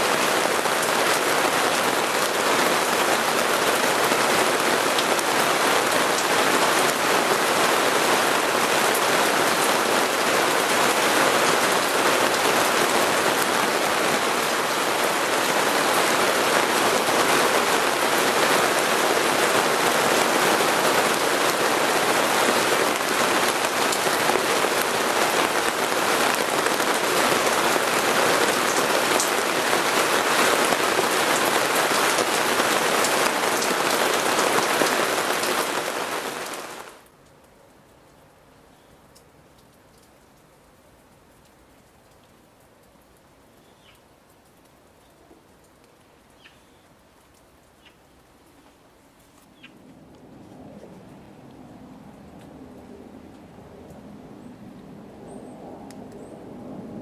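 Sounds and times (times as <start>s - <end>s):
heavy rain falling: 0.0s - 38.6s, 39.3s - 57.0s.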